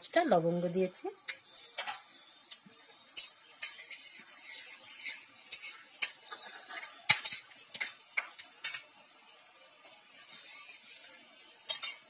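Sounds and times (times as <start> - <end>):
faint oil sizzle: 0.0 - 12.0
metal spatula scraping a pan: 0.4 - 9.0, 10.0 - 12.0.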